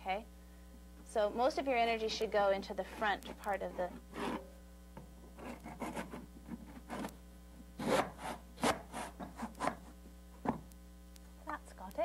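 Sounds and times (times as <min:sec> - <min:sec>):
back saw cutting wooden trim: 0:02.9 - 0:04.5, 0:07.8 - 0:09.8.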